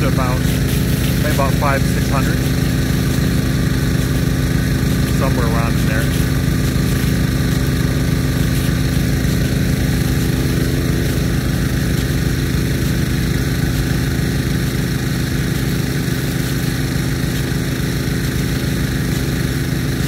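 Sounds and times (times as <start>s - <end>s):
irrigation pumps droning: 0.0s - 20.0s.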